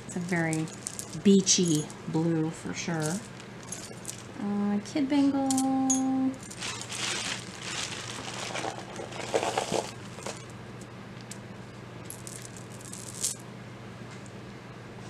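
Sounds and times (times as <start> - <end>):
hands rustling jewelry: 0.2 - 2.2, 3.0 - 4.4, 5.5 - 10.5, 12.1 - 13.4.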